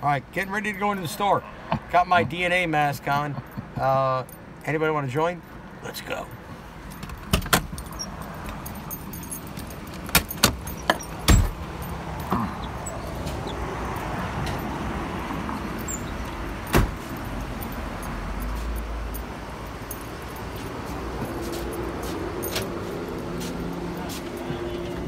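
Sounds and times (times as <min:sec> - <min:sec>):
outdoor street hum: 0:00.0 - 0:25.0
keys jangling: 0:06.8 - 0:25.0
car door clicks: 0:09.5 - 0:11.8, 0:16.6 - 0:17.2
car door slamming: 0:09.9 - 0:11.9, 0:15.8 - 0:17.2.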